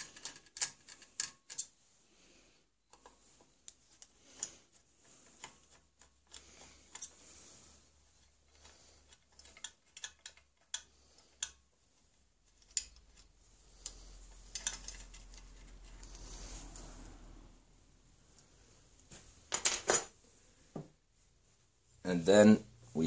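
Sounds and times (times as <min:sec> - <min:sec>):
parts rustling and clattering: 0:00.0 - 0:17.0, 0:18.3 - 0:21.7
screwdriver clicking on metal: 0:09.1 - 0:11.6.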